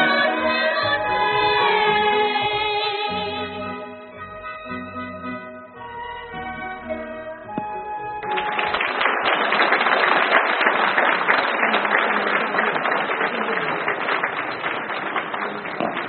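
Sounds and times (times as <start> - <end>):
audience applauding: 7.7 - 16.0.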